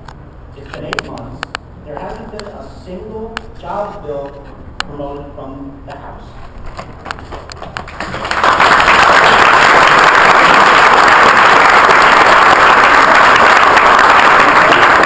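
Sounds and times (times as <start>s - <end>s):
audience applause: 7.3s - 15.0s.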